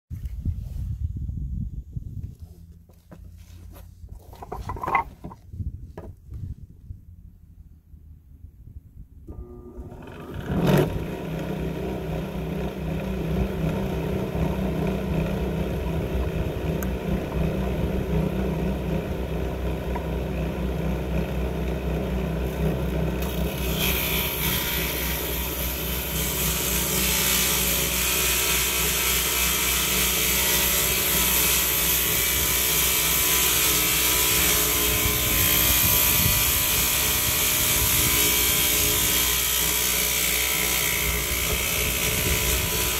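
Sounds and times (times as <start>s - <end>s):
saw cutting wood: 4.3s - 5.4s, 9.3s - 42.9s
electric saw motor drone: 9.3s - 42.9s.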